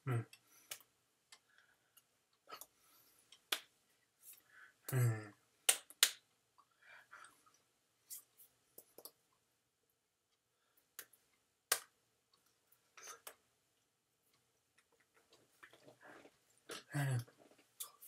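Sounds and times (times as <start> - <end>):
hands slapping and clicking: 3.4 - 5.0, 5.6 - 6.3, 11.0 - 12.0.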